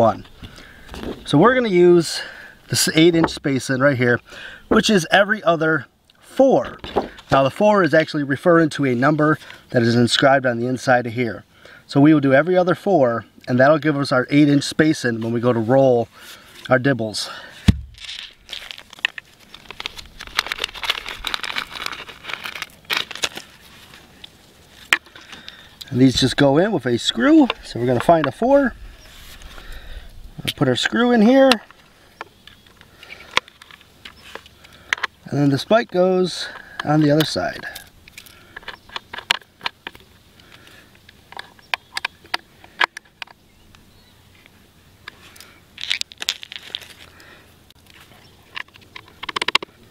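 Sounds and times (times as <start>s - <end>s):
crinkling: 17.4s - 26.5s, 45.1s - 49.8s.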